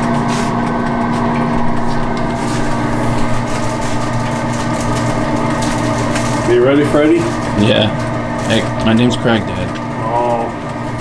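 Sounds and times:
machinery hum and drone: 0.0 - 11.0
syrup boiling crackle: 0.0 - 11.0.

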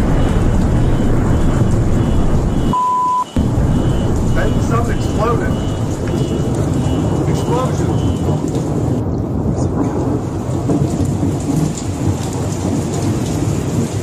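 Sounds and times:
continuous low rumble: 0.0 - 2.8, 3.4 - 9.9
heavy rain: 0.0 - 14.0.

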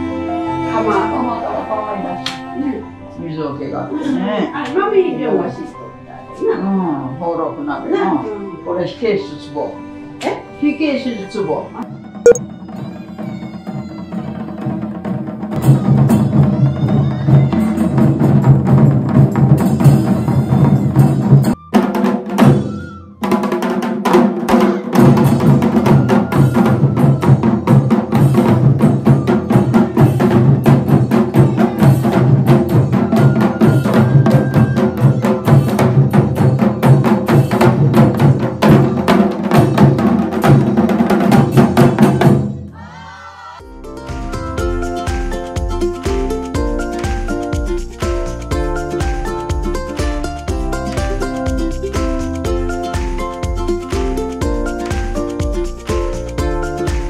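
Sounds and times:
taiko drums beaten fast: 14.1 - 42.6
bamboo flutes playing melody: 21.2 - 23.6, 25.7 - 30.5, 32.7 - 36.2.

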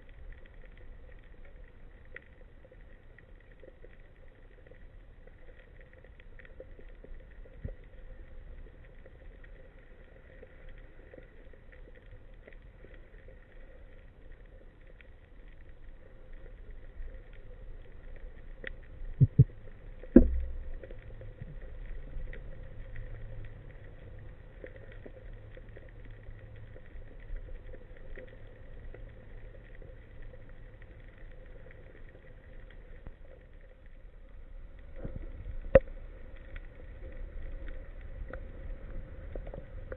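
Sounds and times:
small underwater clicks: 0.0 - 39.9
underwater low rumble: 0.0 - 39.9.

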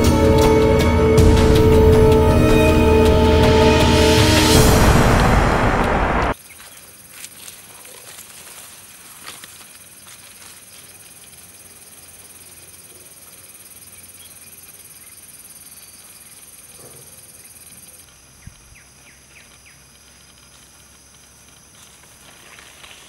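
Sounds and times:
music: 0.0 - 6.4
insects chirring: 0.0 - 23.0
footsteps on dirt path: 6.3 - 11.7, 18.1 - 23.0.

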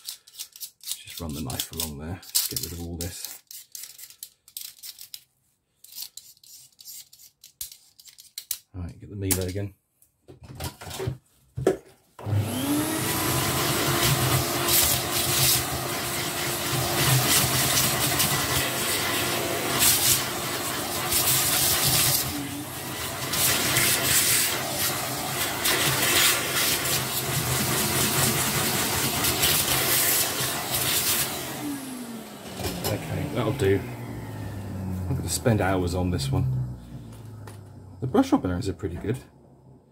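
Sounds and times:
vacuum cleaner running: 12.2 - 38.2.

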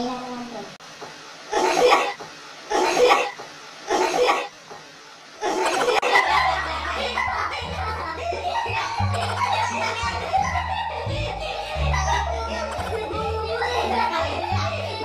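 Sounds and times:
stifled laughter: 5.4 - 15.0.

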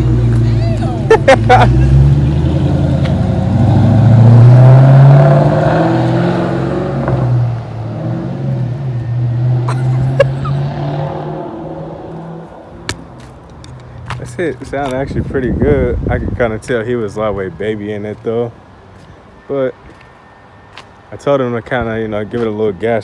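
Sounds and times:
car exhaust accelerating: 0.0 - 14.3.

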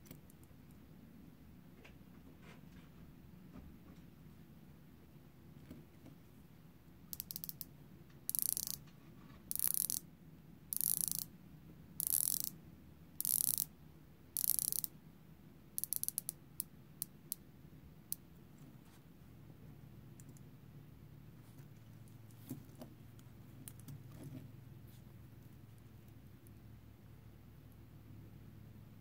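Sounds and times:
watch bezel ratcheting clicks: 7.1 - 7.7, 8.3 - 8.8, 9.5 - 10.0, 10.7 - 11.3, 12.0 - 12.6, 13.2 - 13.7, 14.4 - 14.9, 15.8 - 16.4.

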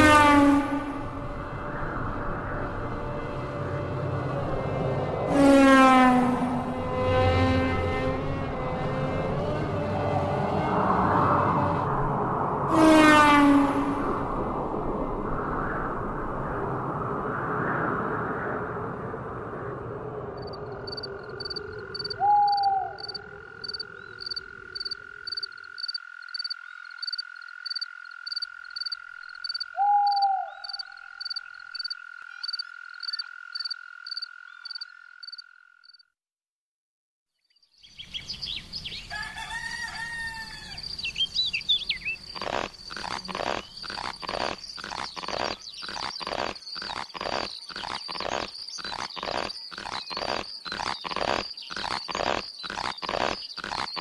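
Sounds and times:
chirping calls: 20.4 - 36.0, 40.5 - 54.0
cricket-like chirping: 20.4 - 36.1, 40.5 - 54.0
falling frog croaks: 20.4 - 36.1, 42.3 - 54.0
steady insect trill: 20.4 - 36.1, 41.9 - 54.0.

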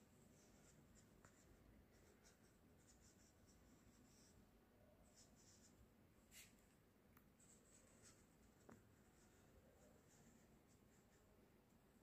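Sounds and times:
marker pen scratching on paper: 0.2 - 4.4, 5.0 - 6.7.

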